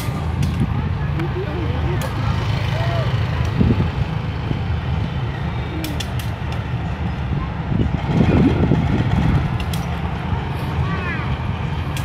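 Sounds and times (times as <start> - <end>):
locomotive engine rumbling: 0.0 - 12.0
wind on microphone: 3.5 - 5.3, 6.7 - 11.9.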